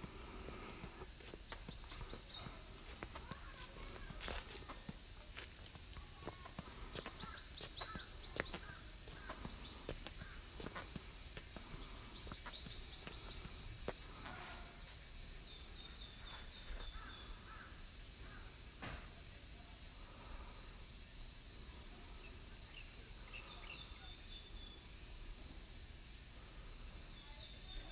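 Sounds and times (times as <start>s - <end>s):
birds calling: 0.0s - 4.5s, 6.2s - 14.9s, 15.5s - 18.5s
footsteps on a path: 0.0s - 15.1s.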